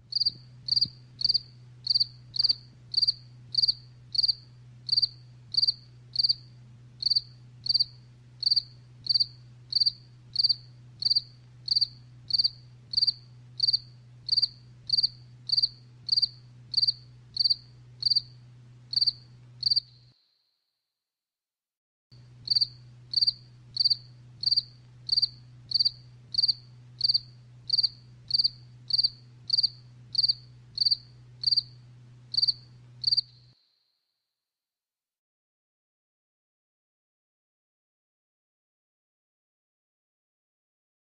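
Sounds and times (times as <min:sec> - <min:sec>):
faint low hum: 0:00.0 - 0:20.2, 0:22.2 - 0:33.6
cricket chirping: 0:00.1 - 0:20.1, 0:22.5 - 0:33.5.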